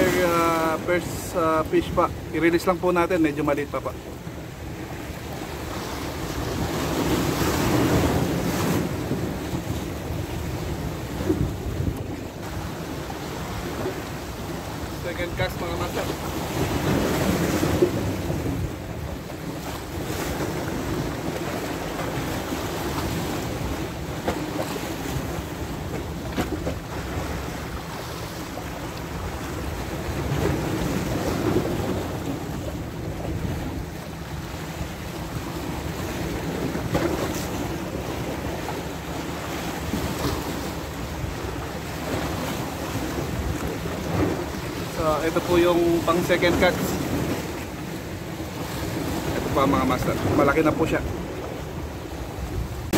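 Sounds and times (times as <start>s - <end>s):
sea waves washing against rocks: 0.0s - 52.9s
wind buffeting microphone: 6.2s - 14.8s, 48.4s - 52.9s.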